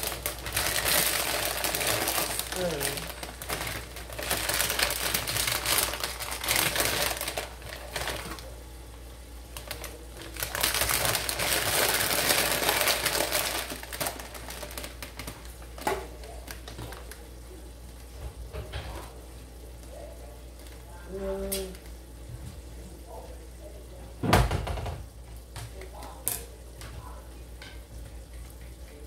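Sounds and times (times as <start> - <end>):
plastic crinkling and rustling: 0.0 - 8.6, 9.5 - 17.2.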